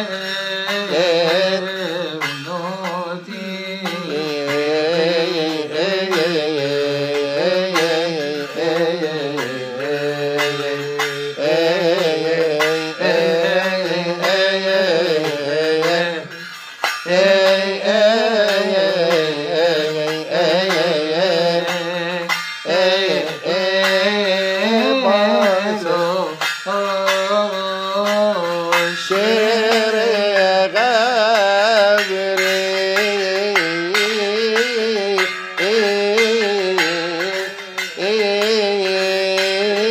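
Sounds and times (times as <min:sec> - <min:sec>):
small hand cymbals: 0:00.0 - 0:39.9
liturgical hymn chanted: 0:03.2 - 0:21.7, 0:22.7 - 0:27.4.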